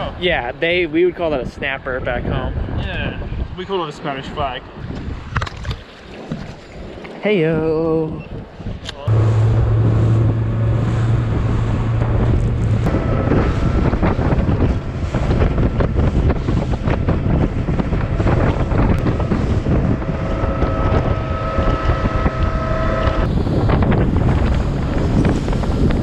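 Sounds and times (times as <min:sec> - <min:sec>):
wind on microphone: 0:00.0 - 0:26.0
low hum: 0:09.0 - 0:26.0
outboard motor drone: 0:09.0 - 0:26.0
motor whine: 0:09.1 - 0:16.0, 0:17.7 - 0:24.6
hull splashing through waves: 0:09.1 - 0:26.0.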